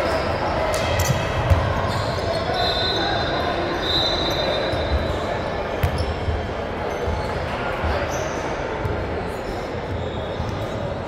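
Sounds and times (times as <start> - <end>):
murmur of voices: 0.0 - 11.0.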